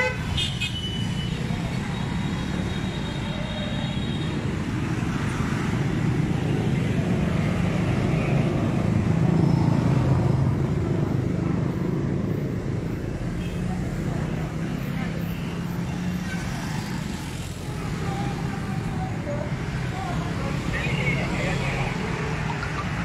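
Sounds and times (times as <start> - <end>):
road traffic passing: 0.0 - 23.0.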